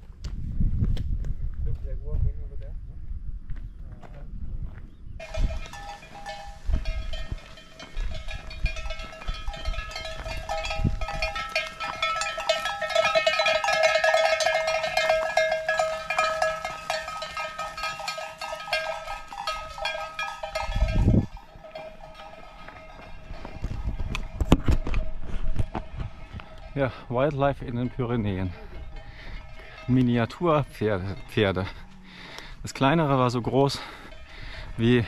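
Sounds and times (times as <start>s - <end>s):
livestock bells clanking: 5.2s - 35.0s.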